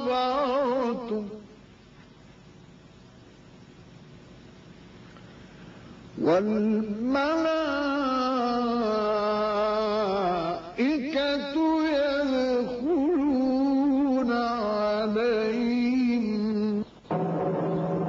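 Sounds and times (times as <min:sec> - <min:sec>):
man reciting melodically: 0:00.0 - 0:01.6, 0:06.1 - 0:17.1.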